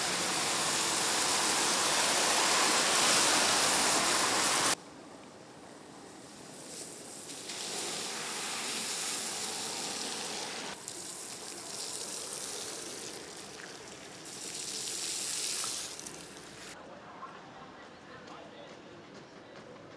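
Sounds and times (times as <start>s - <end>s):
tyres hissing on wet road: 0.0s - 4.8s, 6.0s - 16.8s
wet street noise: 0.0s - 19.9s.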